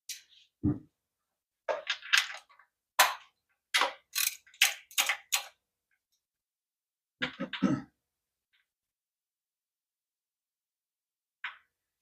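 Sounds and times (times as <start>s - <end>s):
ratchet wrench clicking: 4.1s - 5.1s.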